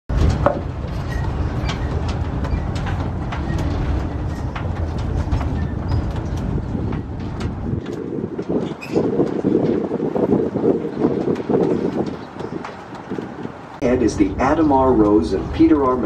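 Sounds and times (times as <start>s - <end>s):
frame clicks and rattles: 0.1s - 10.3s
tram rumbling: 0.1s - 16.0s.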